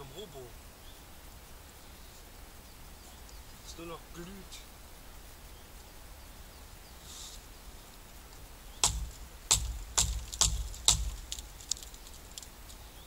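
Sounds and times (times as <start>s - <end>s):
dry wood cracking: 8.8s - 13.0s.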